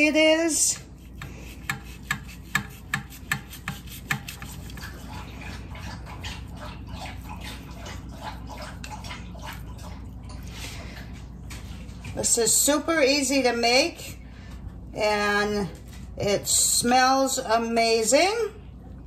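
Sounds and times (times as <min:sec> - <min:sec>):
knife cutting and scraping: 0:00.8 - 0:05.3.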